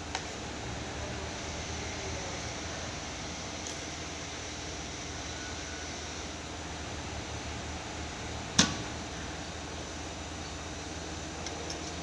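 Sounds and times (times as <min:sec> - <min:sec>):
sewing room machine hum: 0:00.0 - 0:10.2.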